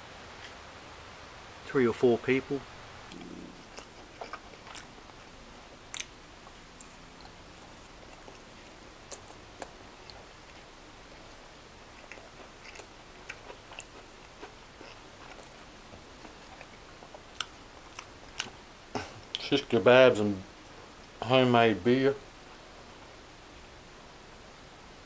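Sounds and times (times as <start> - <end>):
person chewing food: 3.1 - 19.1.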